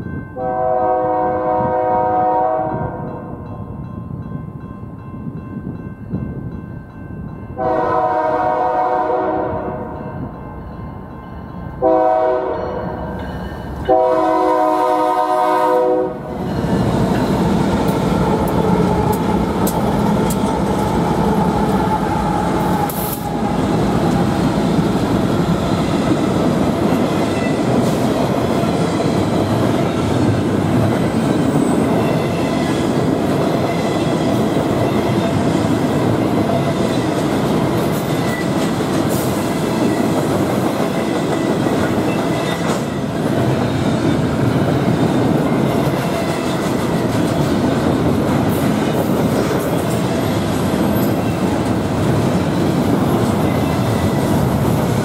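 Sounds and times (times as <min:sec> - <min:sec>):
train wheels on rails: 0:00.0 - 0:55.0
locomotive horn blasts: 0:00.4 - 0:03.0, 0:07.6 - 0:10.0, 0:11.8 - 0:13.0, 0:13.8 - 0:16.3.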